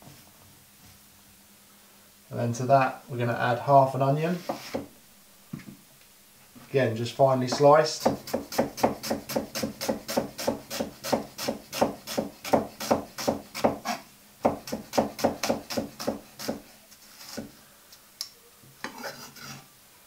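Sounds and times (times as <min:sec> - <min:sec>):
knife slicing onion on wooden board: 0:07.5 - 0:17.5, 0:18.8 - 0:19.7.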